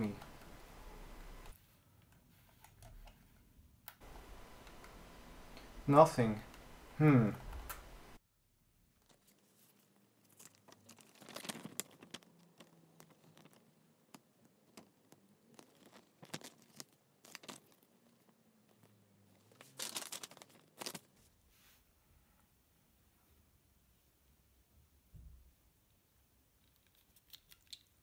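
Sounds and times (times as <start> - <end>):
paper rustling and crinkling: 9.0 - 21.3.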